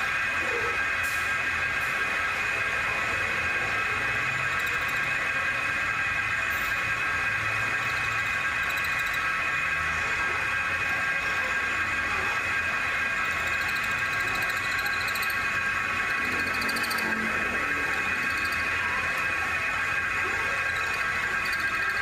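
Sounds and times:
metal lathe whining: 0.0 - 22.0.

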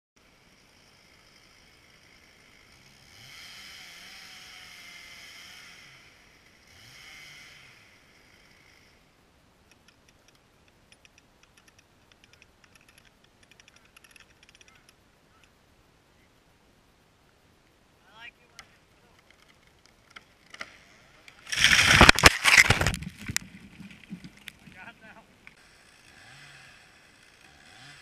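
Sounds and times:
faint chainsaw revving: 0.2 - 9.2, 18.5 - 22.9, 24.0 - 28.0
faint crackles and ticks: 9.6 - 15.6, 18.4 - 25.6.

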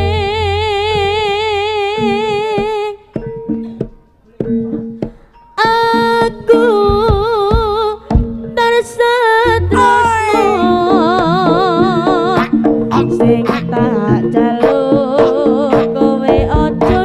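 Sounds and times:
high wavering melody: 9.5 - 11.0
drum strokes: 9.7 - 11.5.

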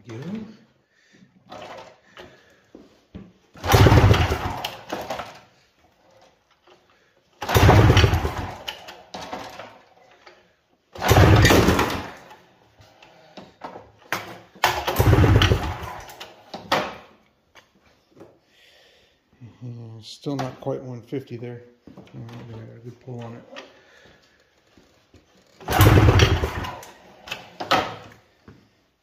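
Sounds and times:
engine pulled over by recoil starter: 3.6 - 5.2, 7.4 - 8.8, 11.0 - 12.3, 14.7 - 16.3, 25.6 - 27.5.

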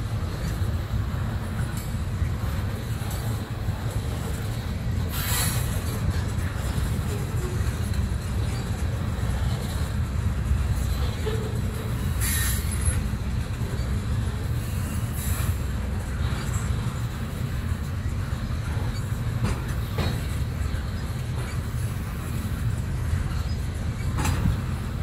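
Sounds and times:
train wheels rumbling on track: 0.0 - 25.0.

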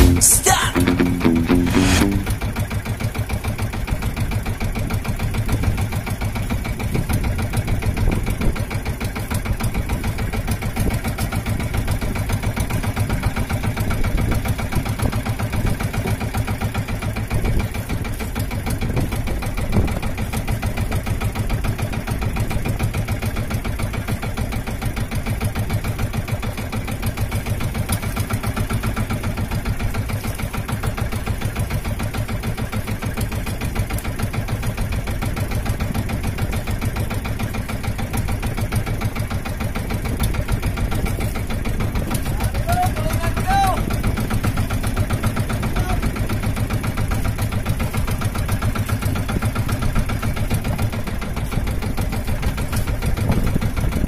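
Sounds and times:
boat engine running: 0.0 - 54.0.

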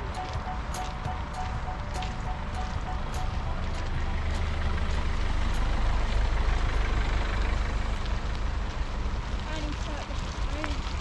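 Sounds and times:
bike tyres rumbling on wet ground: 7.9 - 11.0.

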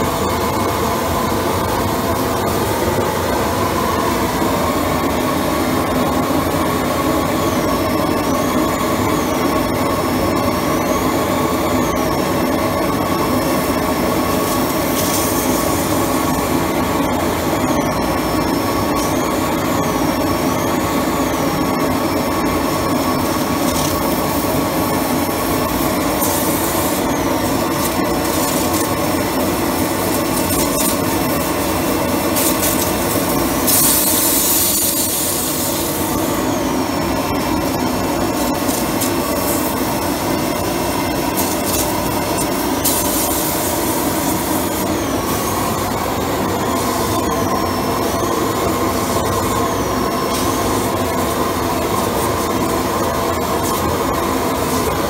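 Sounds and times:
pressure washer running: 12.2 - 17.6, 22.0 - 55.0
steam jetting hiss: 14.3 - 16.4, 25.5 - 27.1, 27.7 - 36.3, 41.3 - 45.8.

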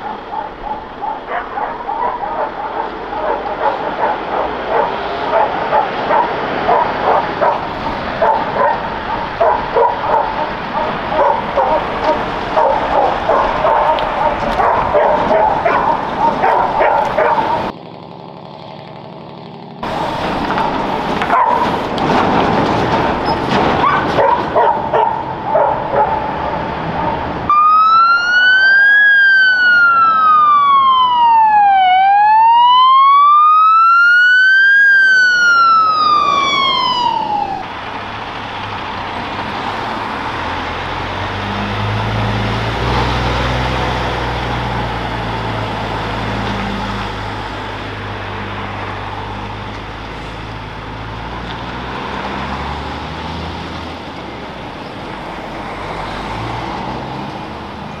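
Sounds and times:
dogs barking: 0.0 - 17.7, 20.5 - 22.0, 23.5 - 27.5
emergency vehicle siren wailing: 0.0 - 17.8, 22.9 - 58.0.

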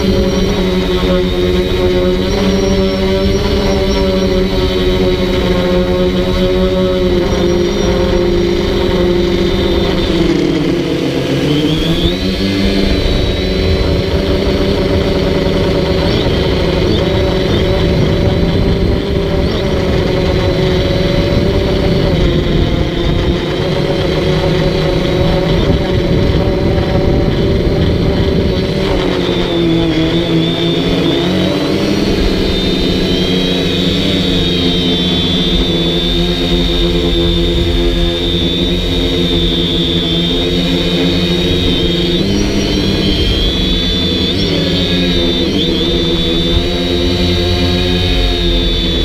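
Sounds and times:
drone motors whining: 0.0 - 49.0.

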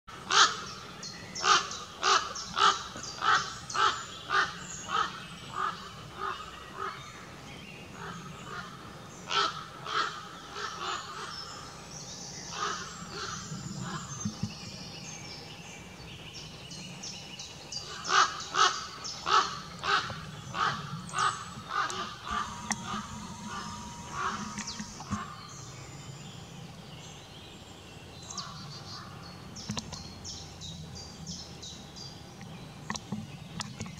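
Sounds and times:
ravens calling: 1.4 - 7.0, 17.9 - 25.6.

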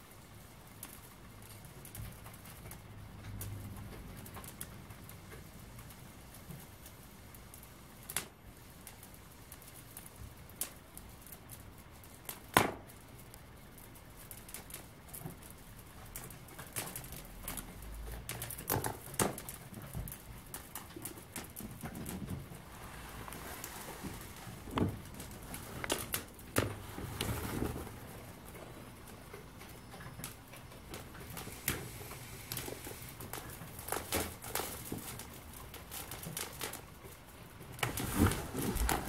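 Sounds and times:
balloon rubber crackling and popping: 30.9 - 39.0.

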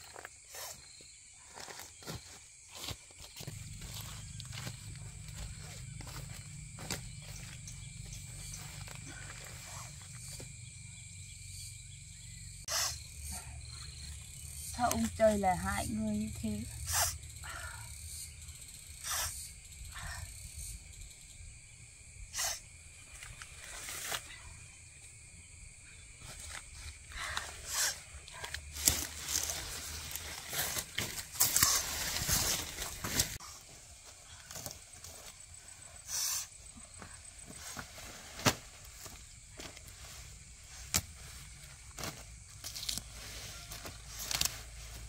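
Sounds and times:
rustles: 0.0 - 10.6, 22.3 - 25.2, 26.1 - 45.0.

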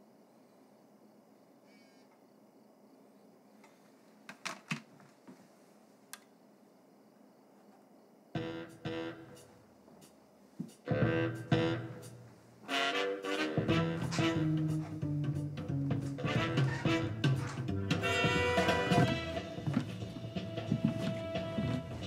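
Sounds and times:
instrumental music through speakers: 10.9 - 12.2, 12.8 - 22.0.

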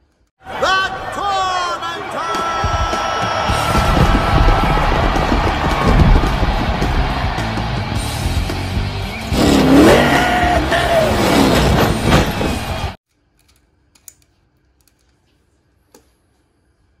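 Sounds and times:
arena noise: 0.4 - 13.0
monster truck engine revving: 8.0 - 13.0.

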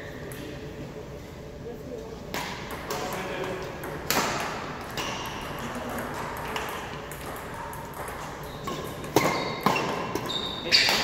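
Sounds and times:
rackets striking shuttlecock: 2.3 - 11.0.

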